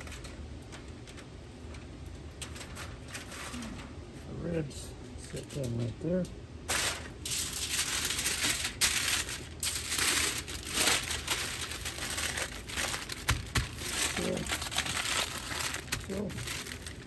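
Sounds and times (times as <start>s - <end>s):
aluminium foil crinkling: 0.0s - 4.0s, 5.2s - 17.0s.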